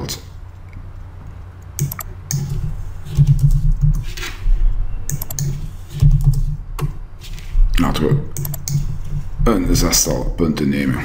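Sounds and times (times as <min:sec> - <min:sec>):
typing on a keyboard: 0:05.1 - 0:06.5, 0:08.4 - 0:08.9.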